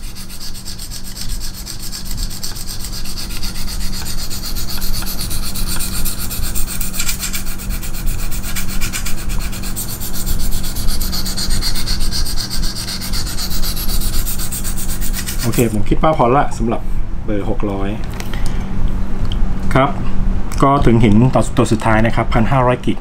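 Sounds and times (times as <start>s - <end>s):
hone scratching along knife edge: 0.0s - 15.8s.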